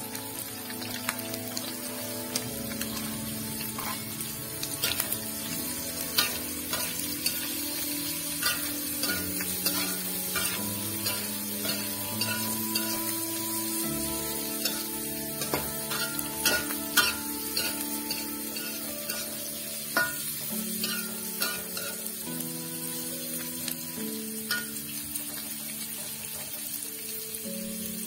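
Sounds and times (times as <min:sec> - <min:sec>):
food sizzling in hot oil: 0:00.0 - 0:28.0
metal spatula scraping a wok: 0:03.6 - 0:13.2, 0:14.4 - 0:22.1.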